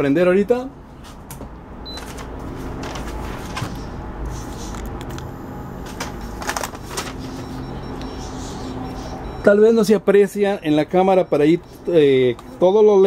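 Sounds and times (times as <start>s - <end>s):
short high beep: 5.1s - 6.4s, 7.2s - 9.8s.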